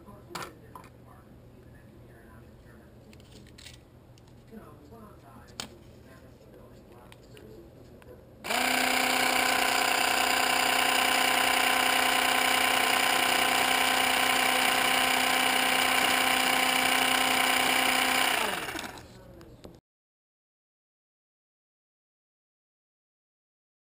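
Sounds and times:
small electric motor humming: 8.5s - 19.2s.

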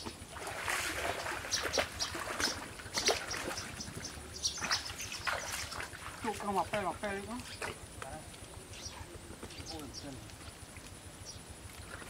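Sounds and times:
muddy water splashing: 0.0s - 8.0s.

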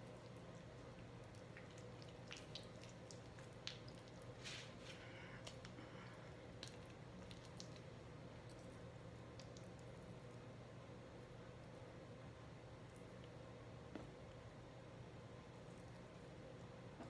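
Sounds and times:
wet squishing of raw chicken: 0.0s - 10.3s
low room hum: 0.0s - 17.0s.

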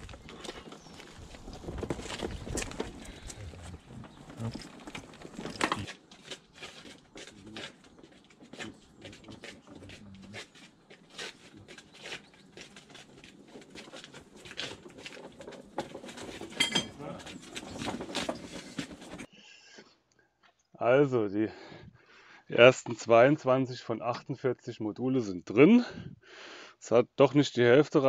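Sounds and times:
footsteps on brick path: 0.0s - 19.3s
trolley wheels rolling over bricks: 0.0s - 19.3s.

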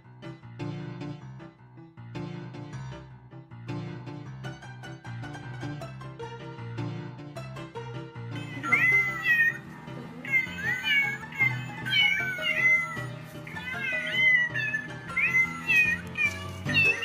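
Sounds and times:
music: 0.0s - 17.0s
cat meowing: 8.4s - 17.0s.

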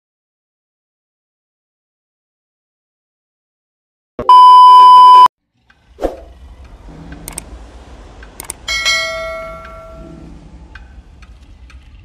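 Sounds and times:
test-tone beep: 4.2s - 5.3s.

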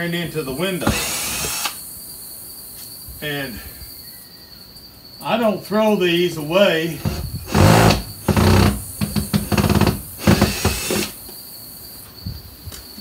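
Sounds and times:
cordless drill bursts: 0.8s - 1.8s, 7.0s - 11.2s.

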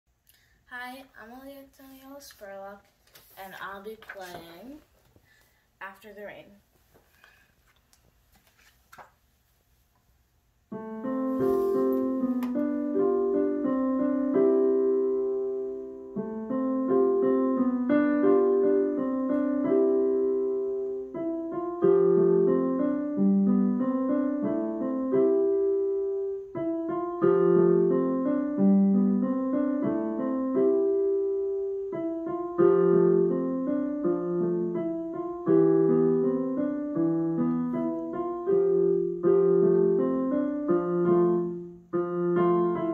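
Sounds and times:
digital piano playing: 10.7s - 42.9s.

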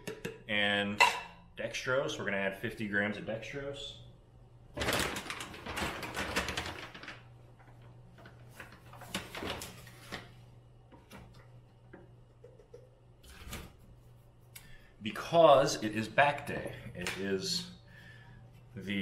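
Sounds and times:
powder bag crinkling: 4.8s - 10.2s.

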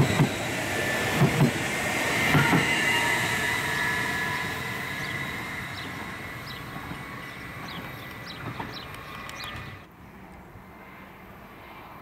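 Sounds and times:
two-pitch electric train whine: 0.0s - 9.9s
wheels rumbling on rail: 0.0s - 12.0s.

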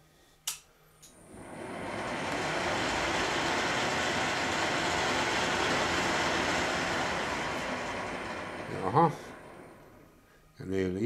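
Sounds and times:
milling machine cutting metal: 1.2s - 10.1s.

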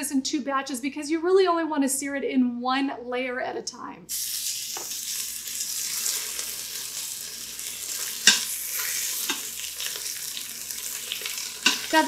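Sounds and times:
meat sizzling in hot oil: 4.1s - 12.0s
metal tongs clacking: 7.9s - 10.1s, 10.9s - 12.0s.

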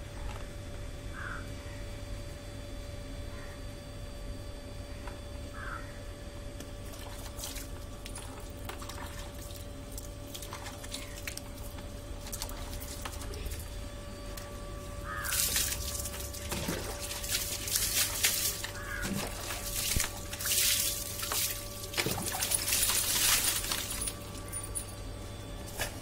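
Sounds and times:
water pouring on concrete floor: 6.9s - 13.7s, 15.2s - 24.6s.

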